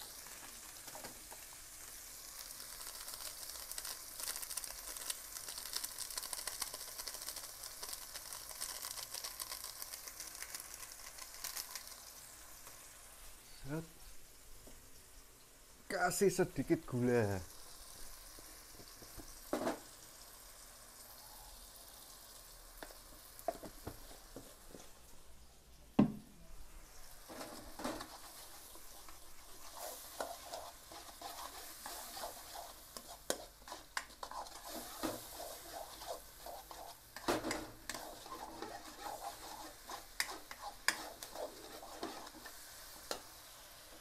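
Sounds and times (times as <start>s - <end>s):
sauce sizzling: 0.0s - 44.0s
spatula scraping a wok: 26.9s - 43.5s.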